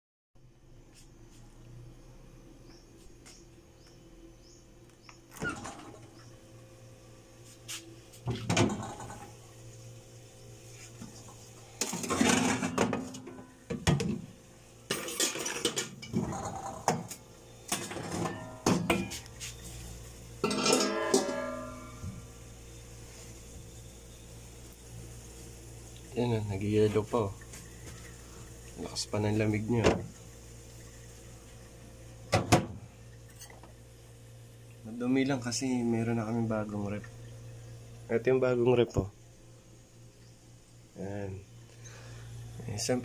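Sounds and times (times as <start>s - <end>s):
metal pots clattering: 11.8s - 14.1s, 14.9s - 17.1s, 17.7s - 19.2s, 20.4s - 22.2s.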